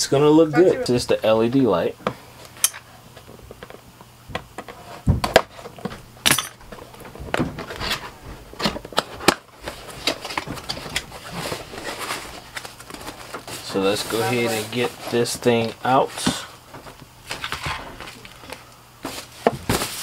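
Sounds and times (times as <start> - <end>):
cardboard flaps rustling: 6.9 - 20.0.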